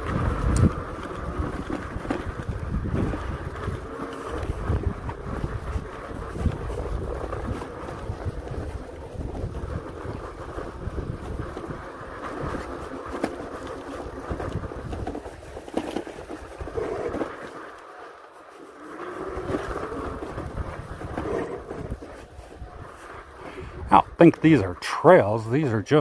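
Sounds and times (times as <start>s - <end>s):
wind rumbling on microphone: 0.0s - 15.6s, 19.2s - 24.2s
bike rolling over loose ground: 0.0s - 23.4s.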